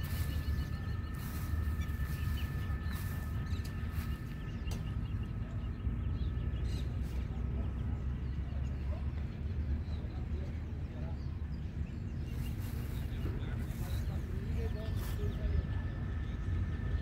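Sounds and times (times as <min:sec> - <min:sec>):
thin high whine: 0:00.0 - 0:05.6
faint bird chirps: 0:00.0 - 0:17.0
low rumble: 0:00.0 - 0:17.0.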